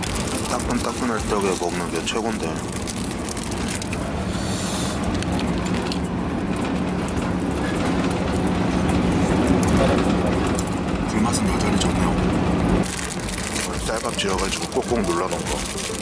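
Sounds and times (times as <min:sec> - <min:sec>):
plastic bag rustle: 0:00.0 - 0:06.1, 0:12.8 - 0:16.0
train rumble and hum: 0:00.0 - 0:16.0.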